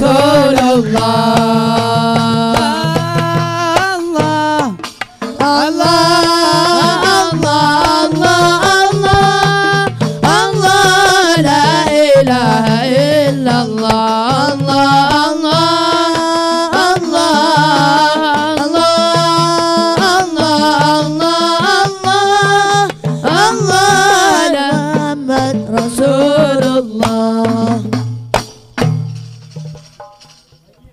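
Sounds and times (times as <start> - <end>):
man singing devotional song: 0.0 - 28.1
hand drums beating rhythm: 0.0 - 30.9.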